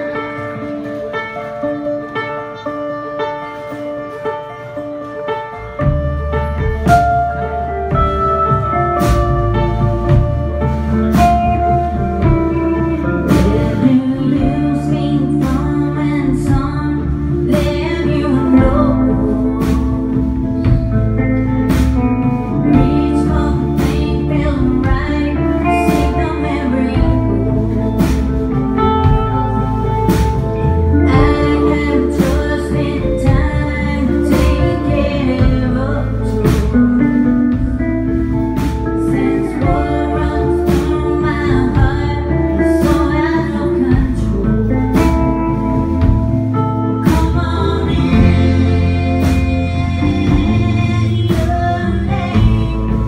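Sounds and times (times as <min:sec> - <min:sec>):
bass guitar: 0:00.0 - 0:53.0
drums with steady beat: 0:00.0 - 0:53.0
electric guitars: 0:00.0 - 0:53.0.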